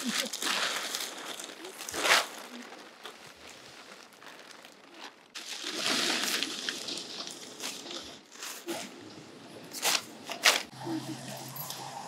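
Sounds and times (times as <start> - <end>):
tent fabric rustling: 0.0 - 9.1.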